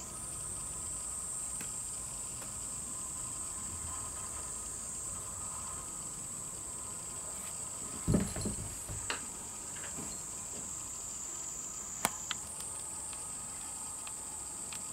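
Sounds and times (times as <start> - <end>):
insects chirring: 0.0 - 14.9
thump: 8.0 - 9.1.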